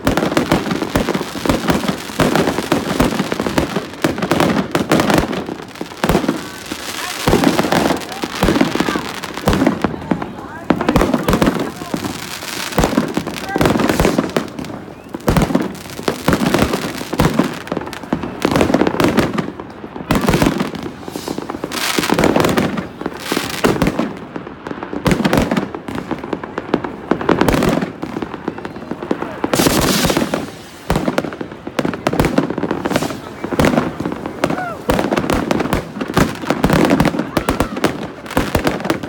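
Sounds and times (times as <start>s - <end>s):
firecrackers banging and crackling: 0.0s - 39.0s
rockets bursting: 0.0s - 39.0s.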